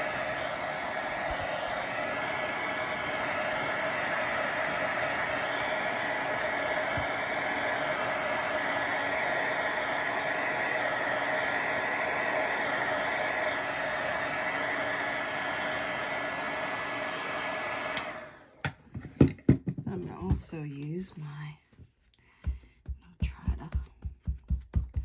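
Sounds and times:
heat gun whirring hiss: 0.0s - 18.5s.

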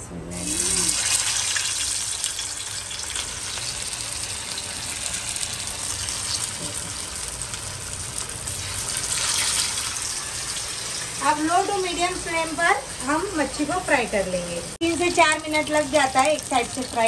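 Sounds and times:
fish sizzling in hot oil: 0.4s - 14.1s, 14.8s - 17.0s.

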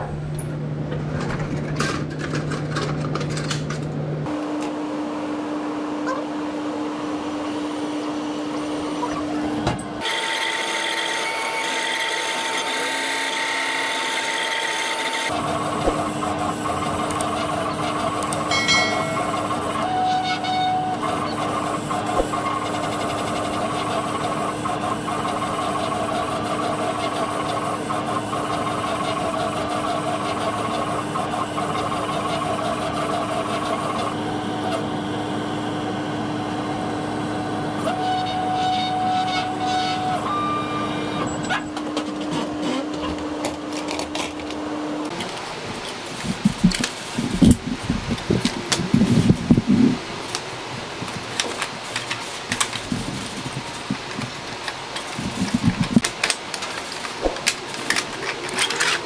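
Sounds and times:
laser cutter motors: 8.5s - 41.8s
steady hum: 15.3s - 42.3s.

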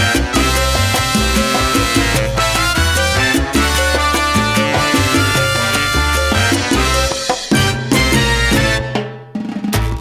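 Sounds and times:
salsa music: 0.0s - 10.0s
drums: 3.4s - 10.0s.

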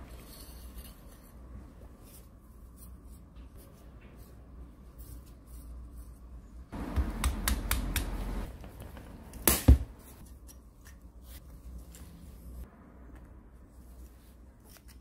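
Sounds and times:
metal parts rubbing and scraping: 0.0s - 6.4s.

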